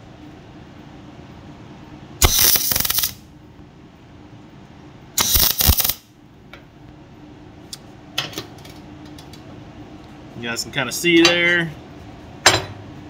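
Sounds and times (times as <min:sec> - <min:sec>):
welding arc crackling: 0:02.2 - 0:03.2, 0:05.2 - 0:06.1.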